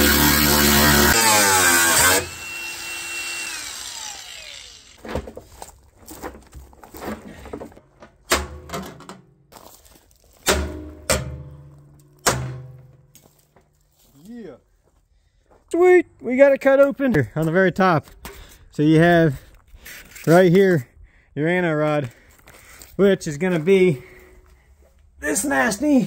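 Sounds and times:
angle grinder cutting steel: 0.0s - 5.0s
metallic knocks and clanks: 8.0s - 9.4s, 10.4s - 13.1s.

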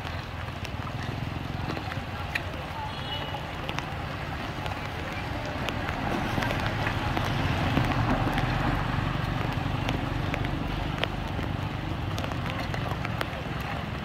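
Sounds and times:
traffic on wet road: 0.0s - 14.0s
vehicle engine rumble: 0.0s - 14.0s
water running into storm drain: 0.0s - 14.0s.

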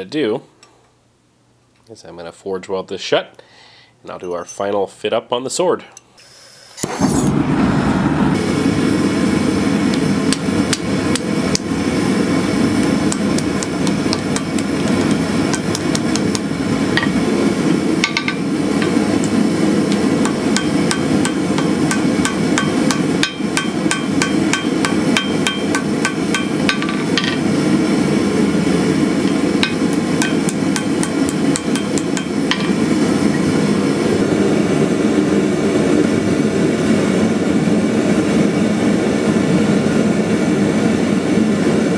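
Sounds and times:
gas forge burner roar: 6.8s - 41.9s
hammer striking steel on anvil: 15.5s - 17.2s, 20.2s - 27.5s, 29.2s - 32.8s.

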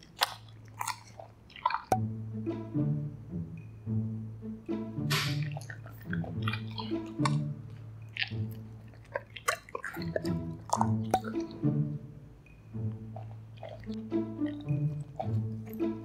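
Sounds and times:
dog chewing: 0.0s - 2.0s, 5.3s - 12.2s, 12.8s - 16.0s
background music: 0.1s - 16.0s.

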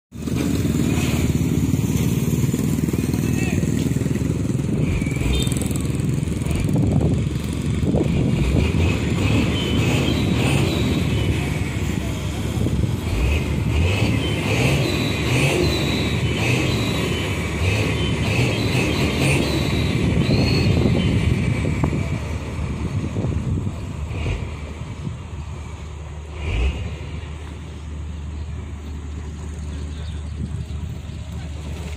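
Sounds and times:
diesel truck engines running: 0.1s - 31.9s.

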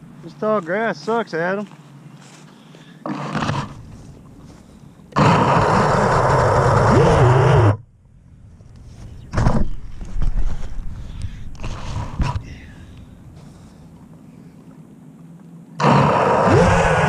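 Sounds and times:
quadcopter motors spinning up: 5.2s - 7.8s, 15.8s - 17.0s.

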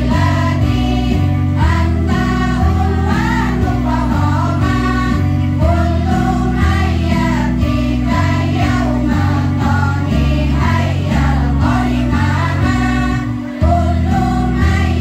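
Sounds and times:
amplified backing music with bass: 0.0s - 15.0s
women's choir singing: 0.0s - 15.0s.

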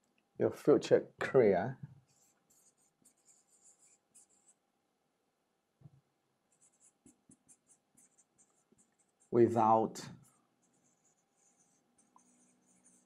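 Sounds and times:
scratchy writing on a board: 2.0s - 4.6s, 6.5s - 13.0s.

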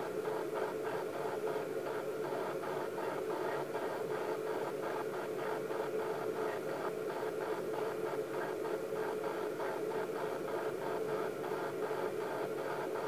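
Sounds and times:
steady hum and hiss: 0.0s - 13.0s.

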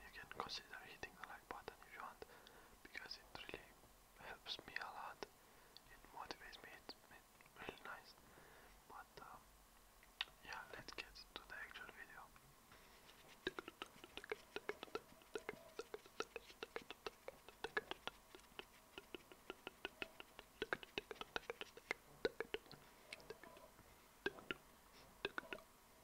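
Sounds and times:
tongue clicks: 10.0s - 12.0s, 13.2s - 25.7s
wet lip smacks: 13.1s - 23.7s, 24.3s - 25.6s.

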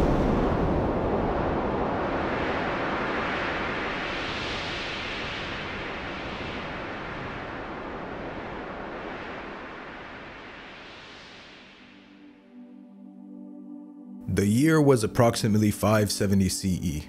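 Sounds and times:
rushing wind-like whoosh: 0.0s - 13.1s.

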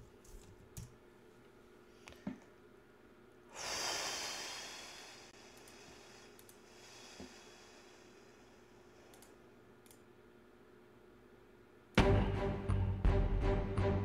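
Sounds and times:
hissing breath out: 3.5s - 8.7s
faint clicks: 5.5s - 6.6s, 9.1s - 10.1s.

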